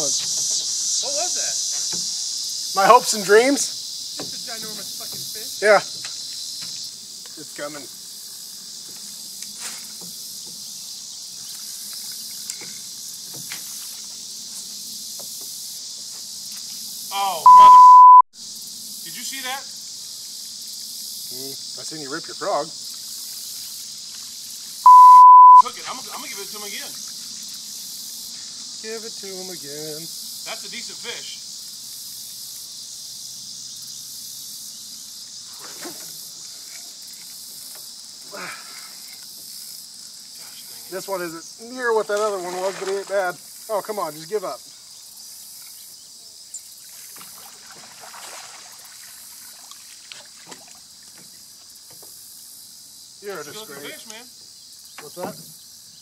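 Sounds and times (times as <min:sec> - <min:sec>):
insects chirring: 0:00.0 - 0:56.0.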